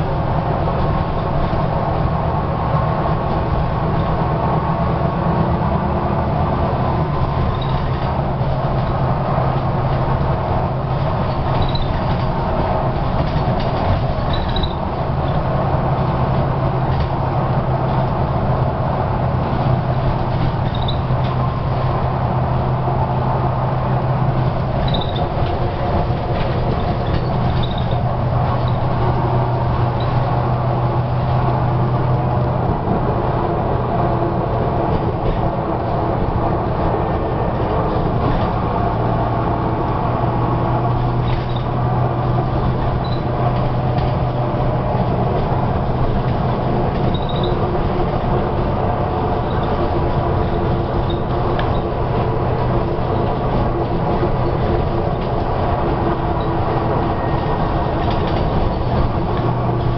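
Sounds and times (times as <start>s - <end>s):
bus body rattling and creaking: 0.0s - 59.9s
bus engine drone: 0.0s - 59.9s
short high squeaks: 11.6s - 12.1s, 14.3s - 14.8s, 20.6s - 21.2s, 24.8s - 25.4s, 26.8s - 28.9s, 43.0s - 43.3s, 47.1s - 47.6s, 51.0s - 51.9s.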